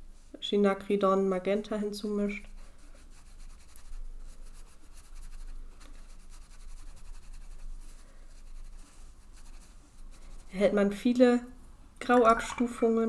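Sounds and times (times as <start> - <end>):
brush scrubbing on paper: 2.2 - 10.6.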